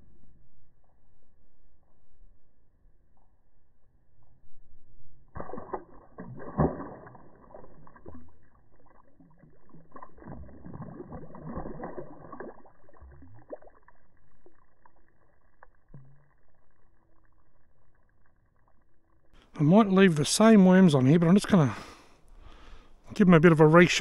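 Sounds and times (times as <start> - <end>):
slowed-down water splash: 0.2 - 19.4.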